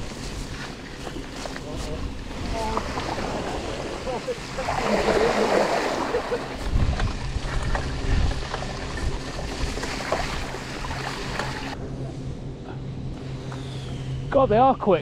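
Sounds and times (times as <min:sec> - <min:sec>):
bike tyres rolling on trail: 0:00.0 - 0:11.8
wind buffeting microphone: 0:00.0 - 0:11.8
steady low hum: 0:00.0 - 0:15.0.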